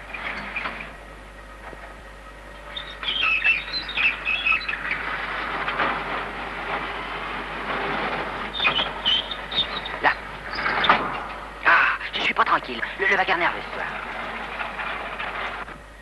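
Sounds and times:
high metallic squeaks: 0.0s - 1.0s, 2.6s - 11.6s
machinery clattering: 0.0s - 16.0s.

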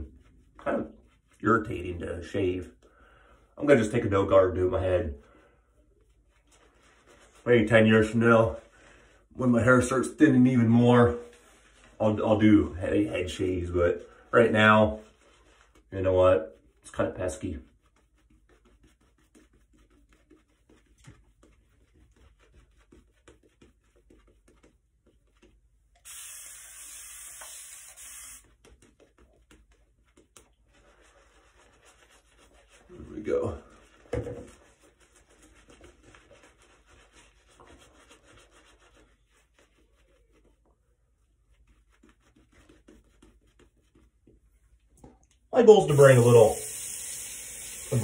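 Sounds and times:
shaving brush scratchy rubbing: 0.0s - 2.6s, 6.0s - 44.3s, 45.7s - 48.0s
steady hiss: 26.0s - 28.5s, 45.9s - 48.0s.

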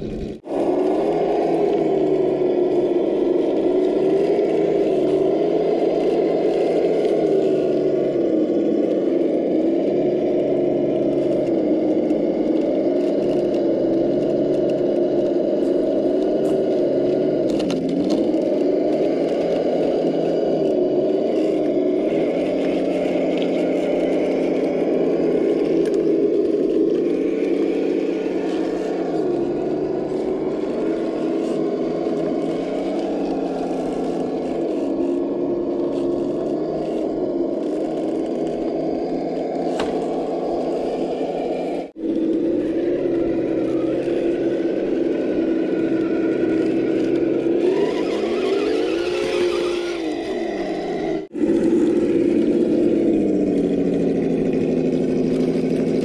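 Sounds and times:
electric motor and gearbox whining: 0.0s - 56.0s.

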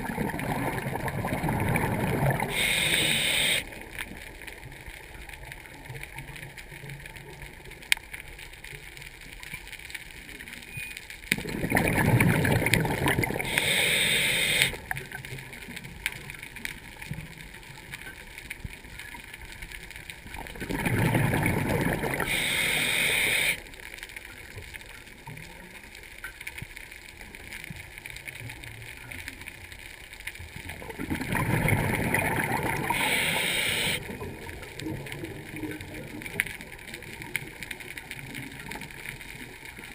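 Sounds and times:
exhaled breath bubbling underwater: 0.0s - 3.7s, 11.4s - 14.8s, 20.6s - 23.6s, 31.2s - 34.2s
low steady water hum: 0.0s - 39.9s.

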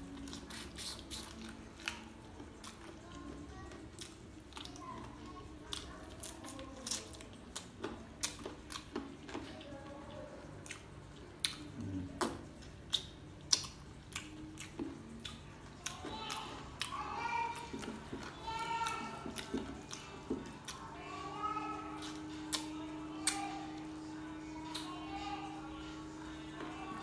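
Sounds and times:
person chewing food: 0.0s - 21.1s.

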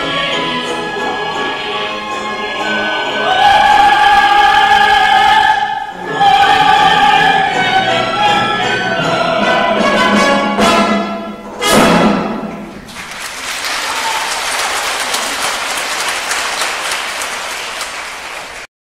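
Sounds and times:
audience applause: 12.7s - 18.7s.

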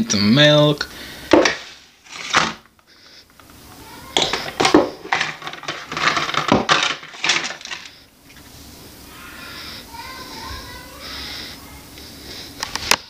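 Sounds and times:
plastic bottles and boxes clattering: 1.2s - 2.8s, 3.4s - 8.0s.

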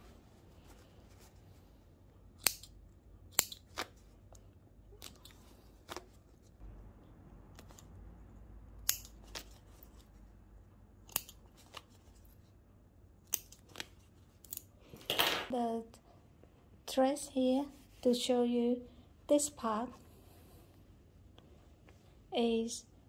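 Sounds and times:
scissors snipping thread: 2.4s - 4.0s, 8.8s - 9.6s, 11.0s - 11.9s, 13.2s - 14.7s.

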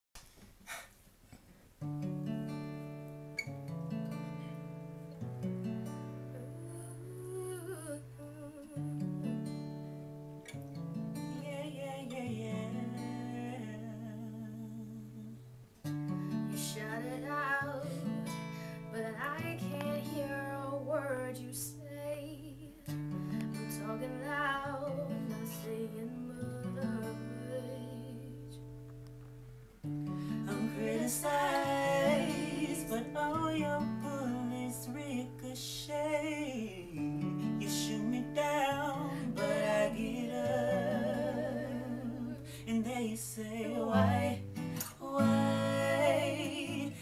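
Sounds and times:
acoustic guitar chords: 1.8s - 47.0s
woman singing: 6.3s - 9.2s, 11.3s - 15.4s, 16.5s - 23.0s, 23.7s - 28.6s, 30.4s - 47.0s.

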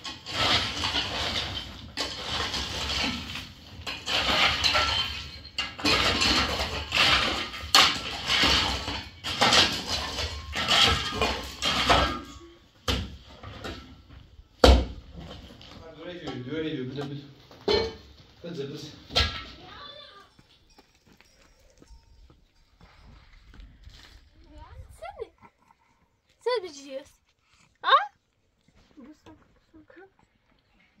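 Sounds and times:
shovel scraping gravelly soil: 0.0s - 12.4s.

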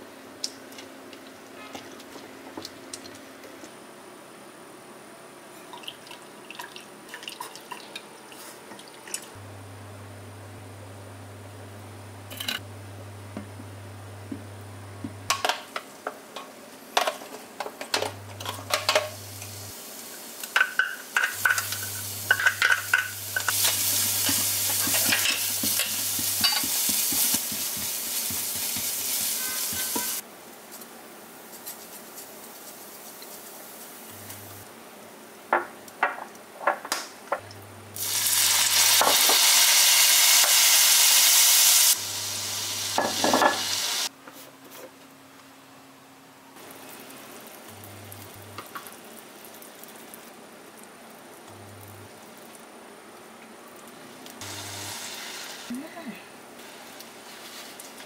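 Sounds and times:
garlic sizzling in hot oil: 18.4s - 30.8s, 38.0s - 44.1s, 54.4s - 55.7s
spatula tapping and scraping pan: 24.2s - 30.2s.

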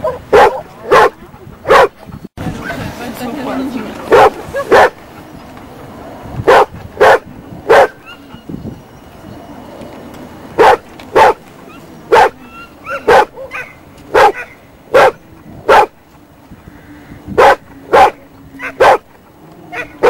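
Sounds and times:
dog barking: 0.0s - 2.0s, 3.5s - 5.0s, 6.5s - 8.2s, 10.6s - 11.4s, 12.1s - 15.9s, 17.4s - 19.0s, 19.7s - 20.0s.

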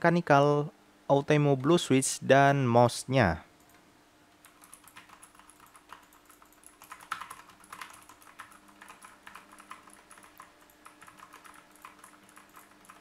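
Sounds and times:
mechanical keyboard typing clicks: 4.4s - 13.0s.

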